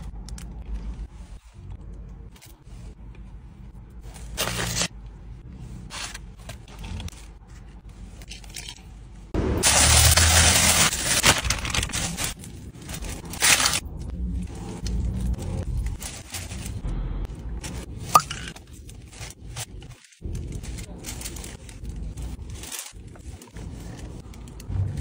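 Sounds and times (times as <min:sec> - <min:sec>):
food rustling and scraping: 0:09.7 - 0:16.8, 0:17.6 - 0:25.0.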